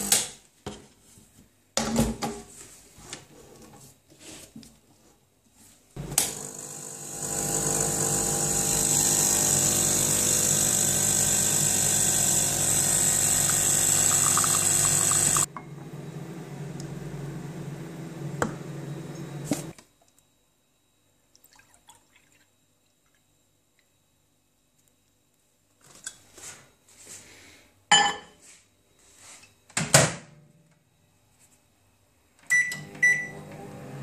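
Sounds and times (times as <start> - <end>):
espresso machine pump humming: 6.0 - 15.5.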